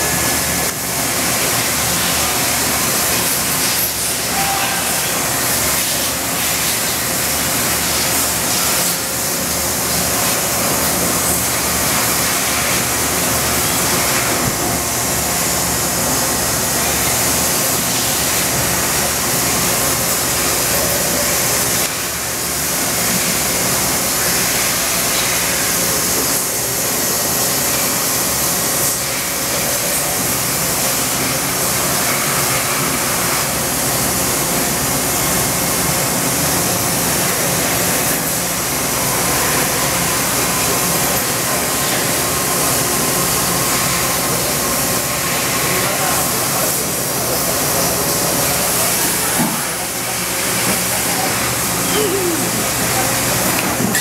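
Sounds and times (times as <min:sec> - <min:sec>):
machining center running: 0:00.0 - 0:28.8
coolant spray and cutting hiss: 0:00.0 - 0:54.0.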